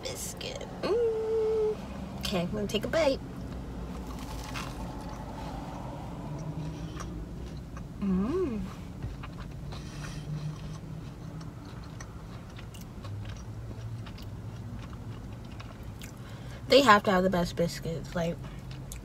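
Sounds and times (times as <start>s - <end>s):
person humming mmm: 0.8s - 1.8s, 8.0s - 8.8s
person chewing biscuit: 3.4s - 16.5s, 18.4s - 19.0s.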